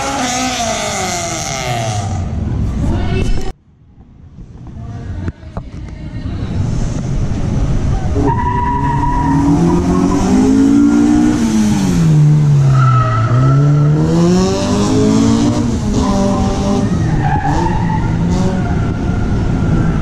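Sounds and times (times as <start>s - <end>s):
car engine revving: 0.0s - 2.8s, 7.4s - 20.0s.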